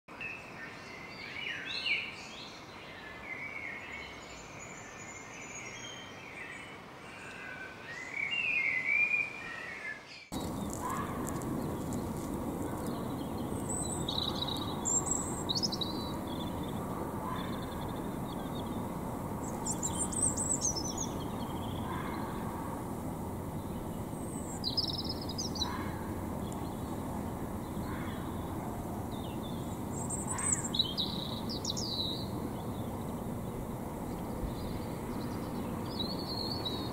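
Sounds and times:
birds chirping: 10.2s - 36.9s
low hum of traffic: 10.3s - 36.9s.

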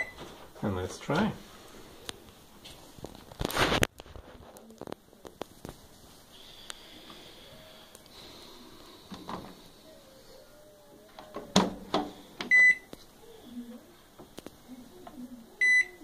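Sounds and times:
microwave beeping: 0.0s - 0.2s, 12.4s - 12.9s, 15.6s - 16.0s.

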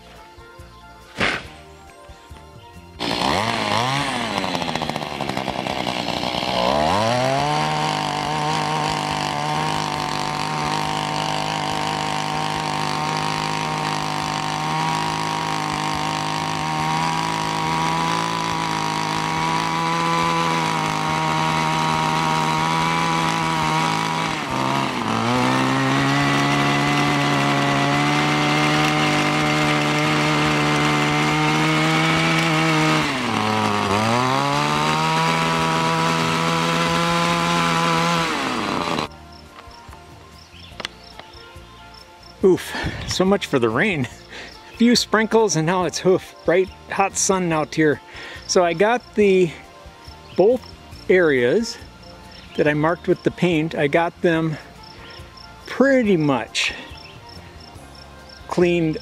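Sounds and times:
small gasoline engine running: 3.0s - 39.2s
tines churning sod: 3.0s - 39.4s, 58.5s - 59.0s.

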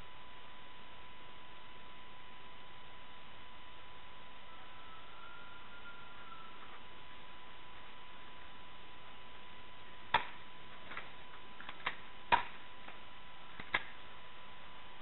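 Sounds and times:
faint steady high tone: 0.0s - 9.8s.

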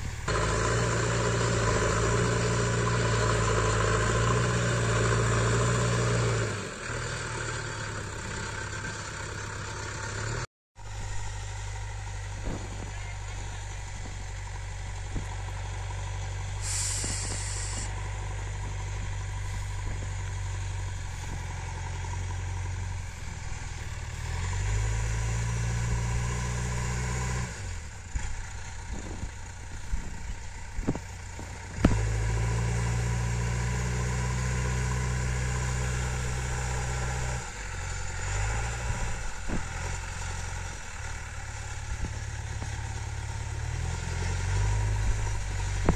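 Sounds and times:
diesel engine revving: 0.0s - 45.9s
brief hiss: 16.6s - 18.0s.

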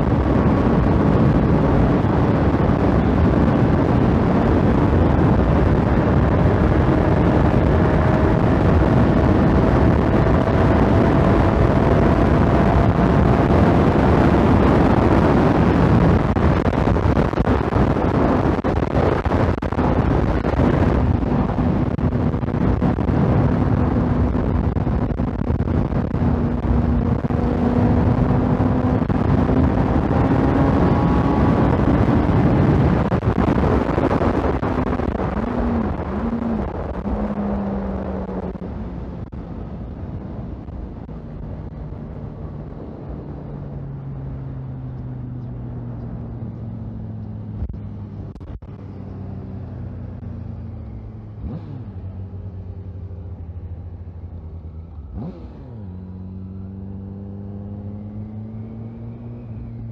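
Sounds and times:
motorcycle engine at high speed: 0.0s - 59.9s
wind rush over microphone: 0.0s - 59.9s.

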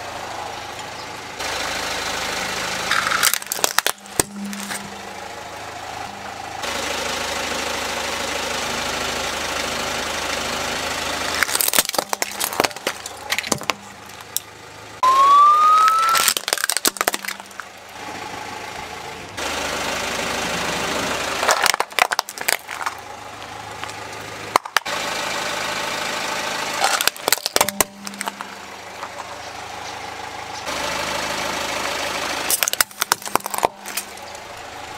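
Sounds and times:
car engine running: 0.0s - 34.9s
plastic toys cracking and crunching: 2.9s - 4.8s, 11.4s - 14.5s, 15.6s - 17.7s, 21.4s - 23.1s, 23.8s - 24.9s, 26.8s - 29.1s, 32.5s - 34.4s
short rising squeal: 15.0s - 16.3s.

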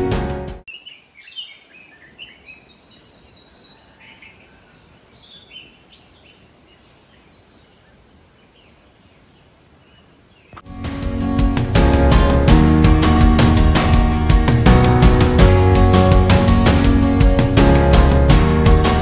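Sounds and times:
birds chirping and singing: 0.7s - 10.7s.

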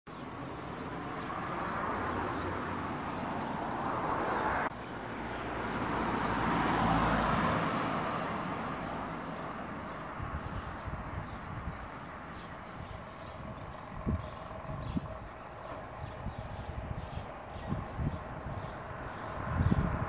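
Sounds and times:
vehicles passing: 0.1s - 20.0s
low engine hum: 0.3s - 20.0s.

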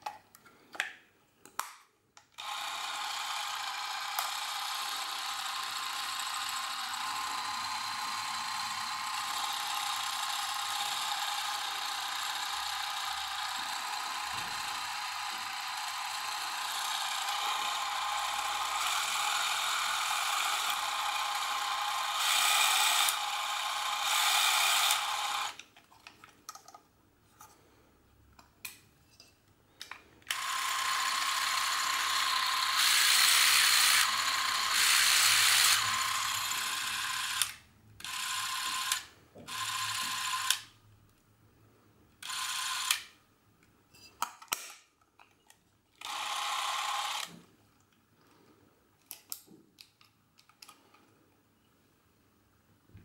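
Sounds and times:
camera motor whirring: 2.4s - 25.6s, 30.3s - 40.7s, 42.2s - 43.1s, 46.0s - 47.4s.

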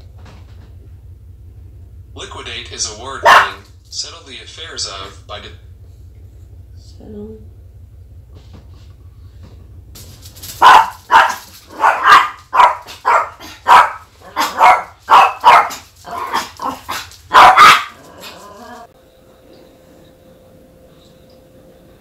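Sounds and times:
dog barking: 3.2s - 3.7s, 10.6s - 18.9s.

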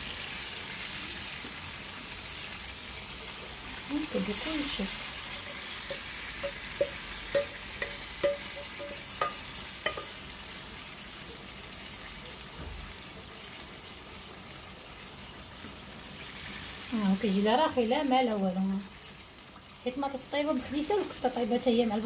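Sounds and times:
sauce sizzling and bubbling: 0.0s - 22.0s
metal spoon knocking glass bowl: 5.9s - 10.2s.

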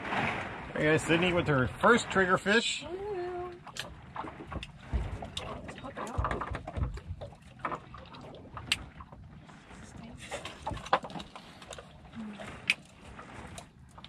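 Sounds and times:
waves slapping boat hull: 0.0s - 14.0s.

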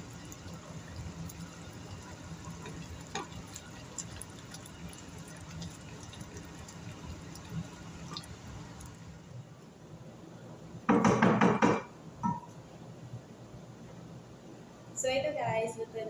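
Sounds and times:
thick sauce bubbling: 0.0s - 9.3s
spoon knocking on pot: 10.9s - 12.5s.

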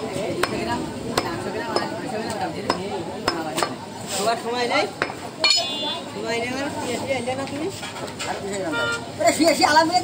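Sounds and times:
cleaver chopping on wooden block: 0.4s - 2.0s.

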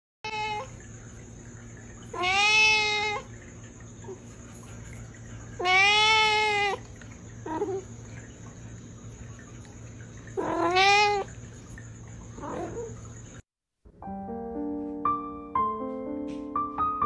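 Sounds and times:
cat meowing: 0.3s - 0.7s, 2.1s - 3.3s, 5.6s - 6.8s, 10.4s - 11.3s.

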